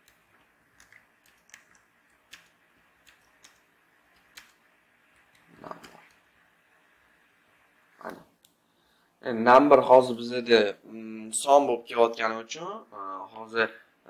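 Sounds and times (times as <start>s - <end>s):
computer keyboard keystrokes: 0.8s - 4.6s.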